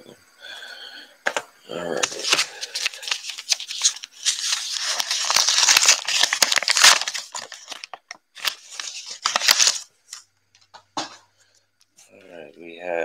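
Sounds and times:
plastic wrapper crackling: 2.0 - 11.2.

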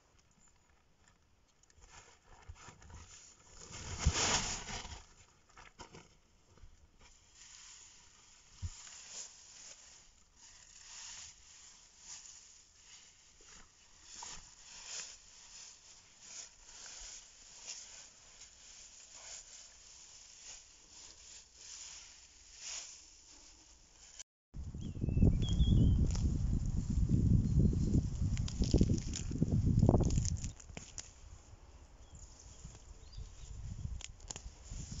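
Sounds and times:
dry plant bedding crackling: 25.2 - 31.4, 32.4 - 35.0.

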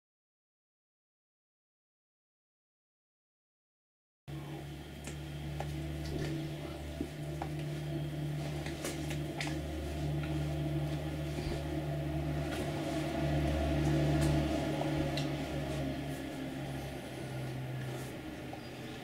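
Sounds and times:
low electrical hum: 4.3 - 19.0.

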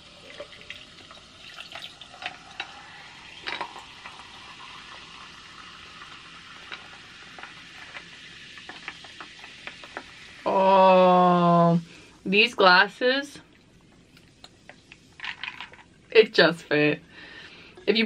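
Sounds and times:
sparkling water fizzing over ice: 0.0 - 11.8.

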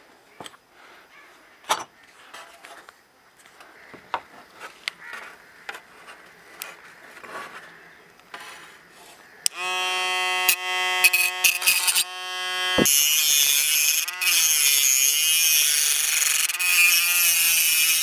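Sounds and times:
hand drill motor whine: 9.5 - 18.0.

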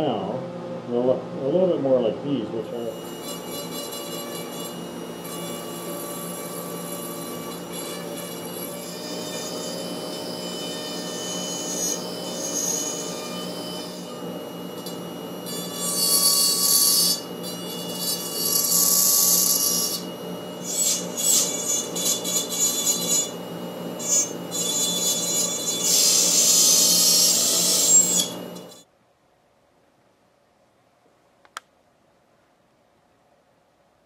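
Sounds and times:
rotary tool whining: 2.6 - 28.9.

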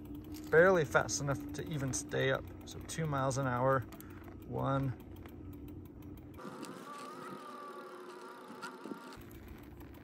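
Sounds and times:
electric motor whining: 6.3 - 10.0.

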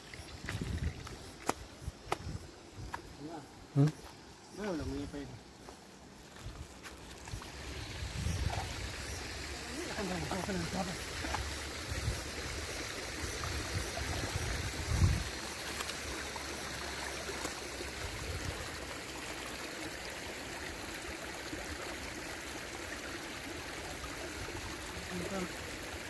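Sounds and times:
river water rushing: 8.7 - 26.0.

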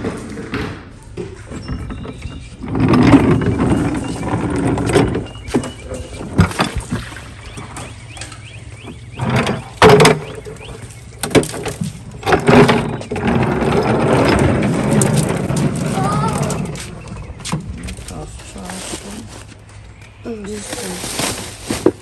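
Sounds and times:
plastic mop bucket rattling: 1.5 - 8.2, 8.8 - 19.6.

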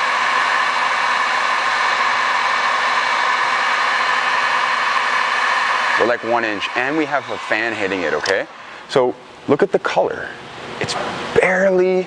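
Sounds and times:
heat gun blowing air: 0.0 - 9.0.

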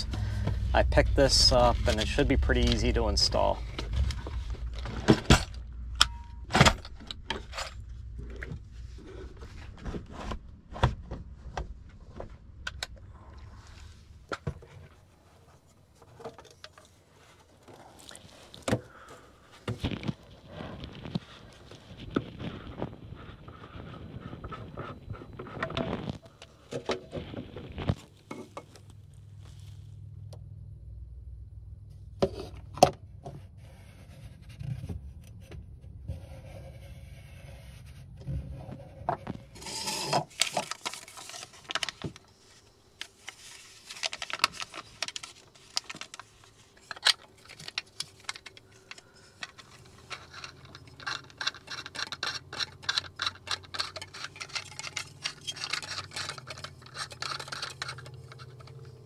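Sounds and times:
scraping rush: 0.0 - 4.8
low hum: 0.0 - 39.9
plastic drain parts clicking: 43.9 - 59.0.

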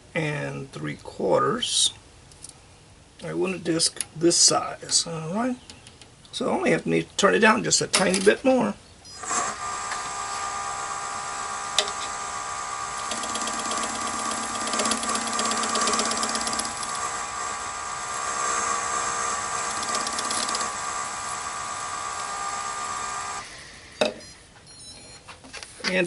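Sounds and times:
lathe motor whine: 9.2 - 24.0
turning tool scraping plastic: 13.0 - 17.1, 18.3 - 21.4.

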